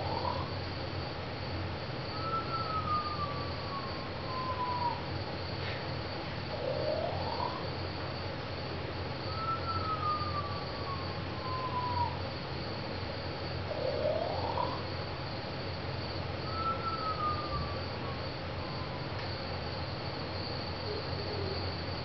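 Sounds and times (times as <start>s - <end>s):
insect-like chirring: 0.0s - 22.0s
gliding whistle-like tones: 2.1s - 5.1s, 6.5s - 7.8s, 9.2s - 12.2s, 13.6s - 15.0s, 16.4s - 19.3s.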